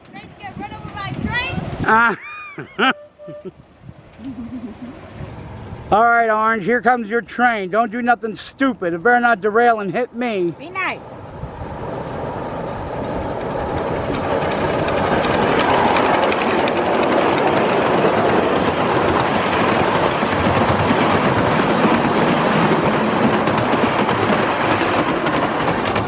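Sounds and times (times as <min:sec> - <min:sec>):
miniature train wheels clattering: 0:12.8 - 0:26.0.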